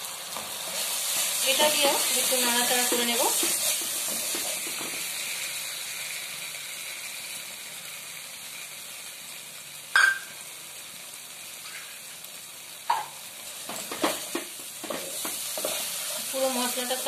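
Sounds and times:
paste sizzling in hot oil: 0.0 - 17.0
wooden spoon clacking on pan: 2.7 - 5.0.

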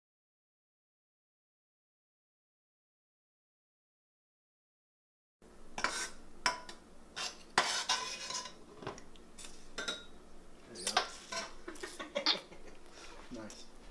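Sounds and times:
fork scraping and clinking on dish: 5.8 - 8.6, 10.8 - 12.0.

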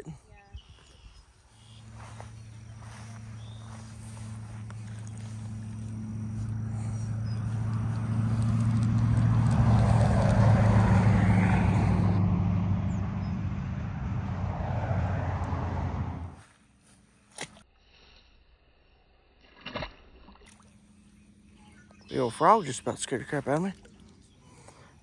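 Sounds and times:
vehicle engine passing by: 1.6 - 16.5.

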